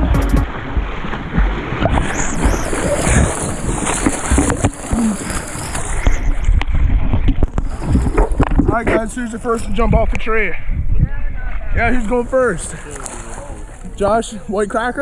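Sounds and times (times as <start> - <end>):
low thumps on microphone: 0.0 - 5.0
creek water splashing: 0.0 - 9.8, 11.4 - 14.6.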